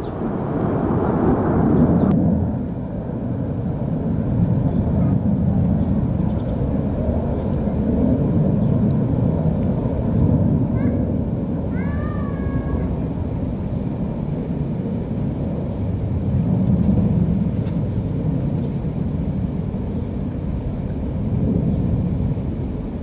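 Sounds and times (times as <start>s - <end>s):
low rumbling background noise: 0.0s - 23.0s
rising pitched call: 11.7s - 13.0s.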